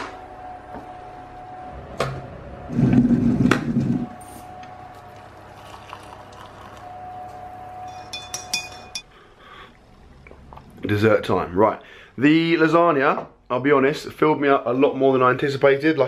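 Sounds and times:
liquid pouring into mug: 4.9s - 6.9s
spoon and crockery clinking: 7.8s - 9.0s.

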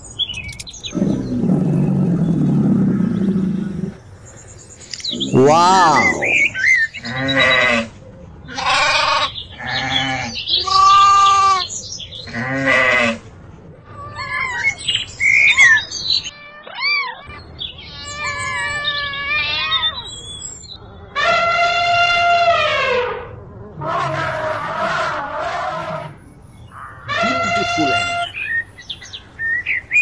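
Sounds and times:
cat meowing: 5.1s - 6.5s
sheep bleating: 5.2s - 6.5s.

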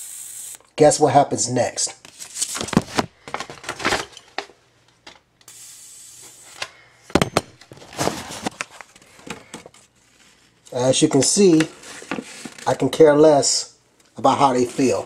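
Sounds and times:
steady hiss: 0.0s - 0.7s, 5.4s - 7.0s
paper rustling: 2.0s - 4.1s, 7.7s - 10.6s.

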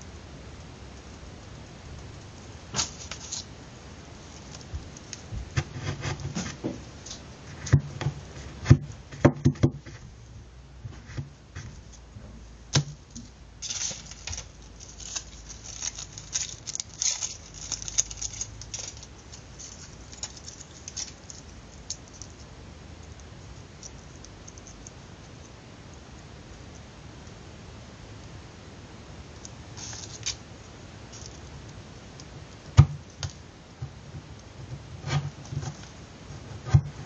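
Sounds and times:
paper rustling: 2.7s - 3.5s, 13.6s - 22.3s, 29.8s - 30.4s.

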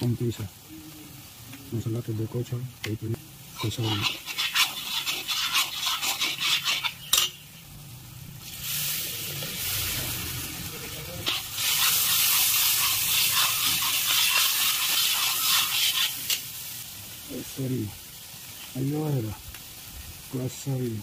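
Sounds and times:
frying sizzle in hot oil: 0.0s - 21.0s
ladle scraping iron pan: 3.6s - 7.4s, 11.2s - 16.4s.

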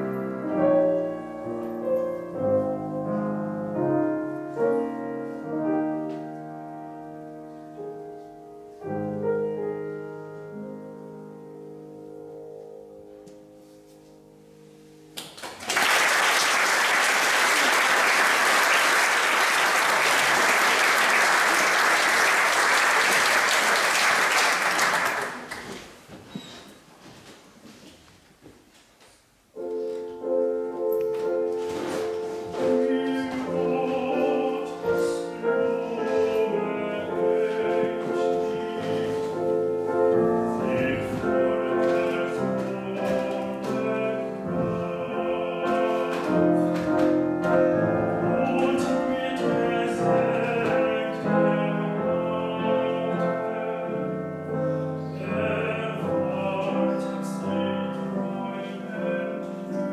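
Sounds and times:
piano accompaniment: 0.0s - 25.8s, 29.4s - 59.9s
young man singing classical song: 2.4s - 5.9s, 31.8s - 59.9s.

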